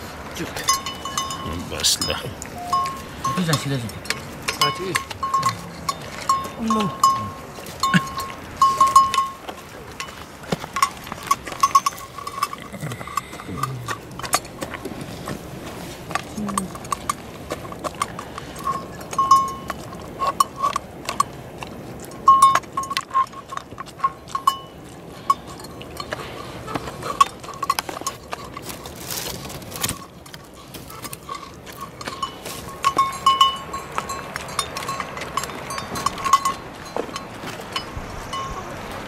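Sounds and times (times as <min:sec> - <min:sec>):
dog eating from metal dish: 0:00.0 - 0:38.8
bell clinking: 0:00.6 - 0:14.0, 0:18.6 - 0:20.7, 0:22.2 - 0:26.2, 0:31.3 - 0:38.7.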